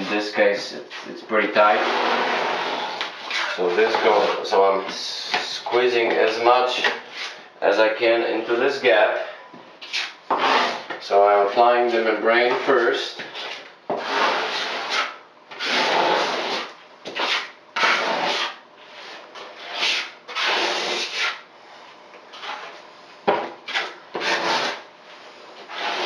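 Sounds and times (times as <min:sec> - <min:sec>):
putty knife scraping board: 0:01.7 - 0:05.5, 0:09.8 - 0:11.0, 0:13.2 - 0:21.4, 0:22.3 - 0:24.9, 0:25.6 - 0:26.0.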